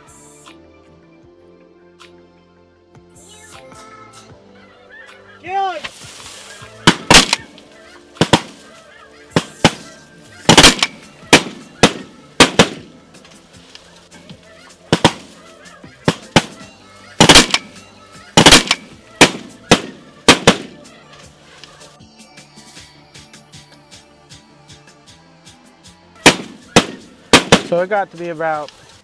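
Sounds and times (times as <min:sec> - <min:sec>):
geese honking: 0:04.5 - 0:22.0.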